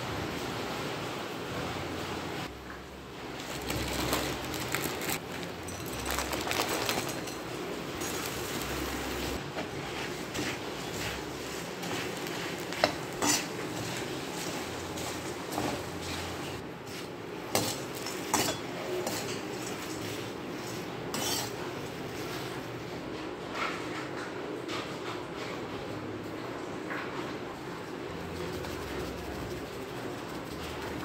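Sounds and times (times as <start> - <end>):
metal spoon scraping a pan: 8.0 - 16.3, 17.5 - 21.8.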